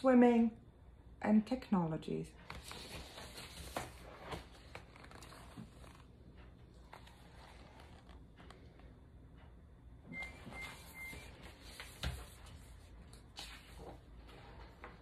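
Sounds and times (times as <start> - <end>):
book pages turning: 2.4 - 8.9, 10.6 - 15.0.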